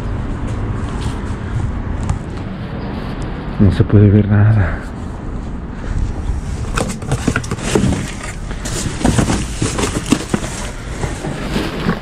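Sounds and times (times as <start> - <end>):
steady low rumble: 0.0 - 11.6
plastic bags and boxes crinkling: 6.7 - 12.0.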